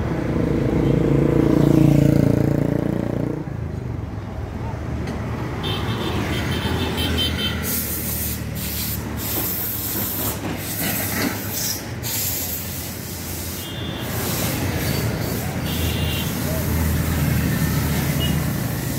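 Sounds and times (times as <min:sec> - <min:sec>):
traffic engine rumble: 0:00.0 - 0:18.9
tyres hissing on road: 0:06.2 - 0:18.9.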